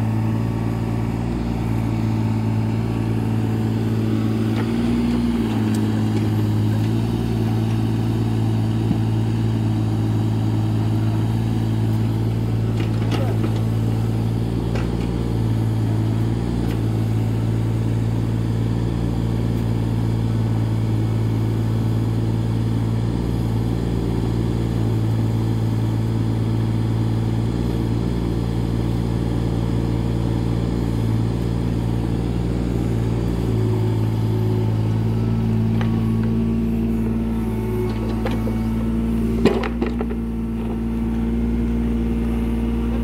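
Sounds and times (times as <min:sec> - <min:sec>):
excavator diesel engine running: 0:00.0 - 0:43.0.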